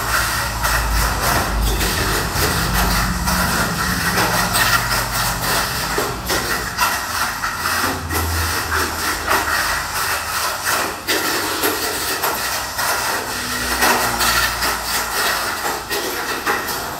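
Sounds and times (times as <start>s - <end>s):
toy car motor whirring: 0.0s - 16.9s
toy car hitting track walls: 10.3s - 16.9s.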